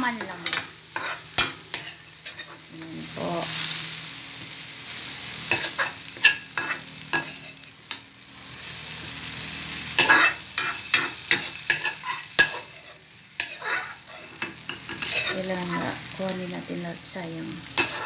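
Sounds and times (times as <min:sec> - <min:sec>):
onions sizzling in a wok: 0:00.0 - 0:18.0
metal spatula scraping a pan: 0:00.1 - 0:02.9, 0:05.5 - 0:07.7, 0:09.9 - 0:16.0, 0:17.7 - 0:18.0.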